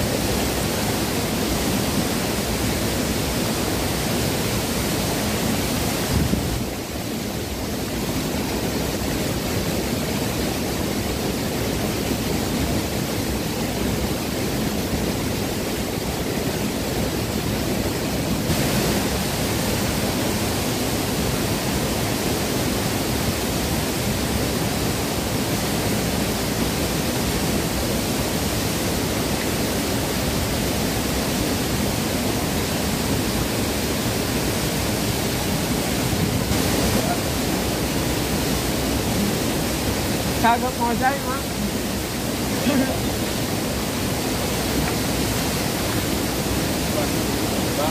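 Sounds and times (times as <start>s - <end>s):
water rushing over rocks: 0.0s - 47.9s.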